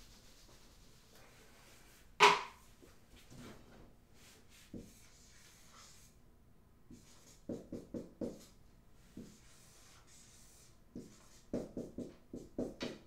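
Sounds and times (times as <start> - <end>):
marker writing on a whiteboard: 4.2 - 6.2, 6.9 - 13.0.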